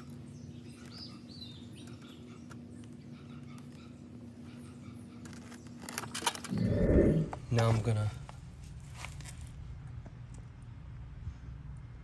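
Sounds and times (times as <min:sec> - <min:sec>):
steady low hum: 0:06.4 - 0:07.6.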